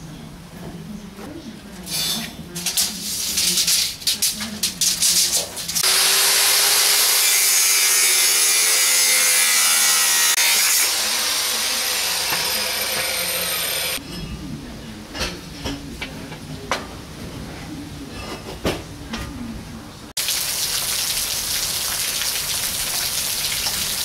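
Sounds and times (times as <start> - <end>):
angle grinder cutting steel: 5.7 - 14.0.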